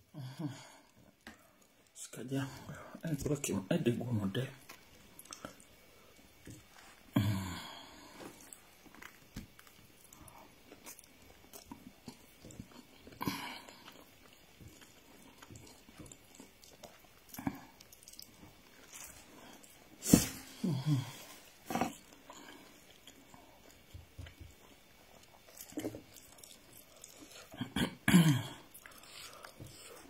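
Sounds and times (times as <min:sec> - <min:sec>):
person chewing with mouth smacks: 0:04.6 - 0:07.1, 0:08.0 - 0:20.5, 0:21.2 - 0:30.0.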